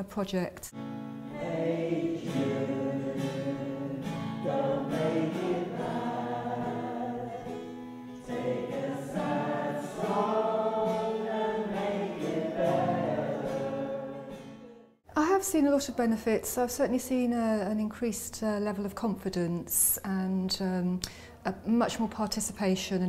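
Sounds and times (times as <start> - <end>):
strummed acoustic guitar: 0.8 - 14.9
choir singing in unison: 1.3 - 14.9.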